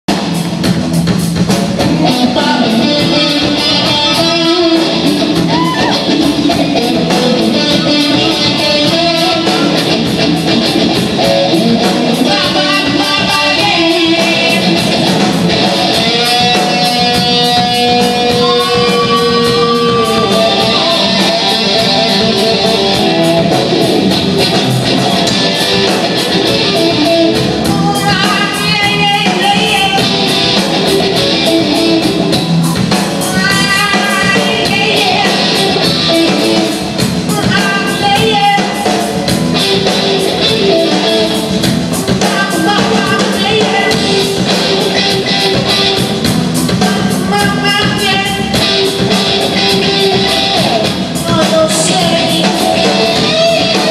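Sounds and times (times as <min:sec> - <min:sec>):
bass guitar: 0:00.0 - 0:53.9
drum kit: 0:00.0 - 0:53.9
electric guitar: 0:00.0 - 0:53.9
person singing: 0:01.8 - 0:32.4, 0:33.0 - 0:53.9.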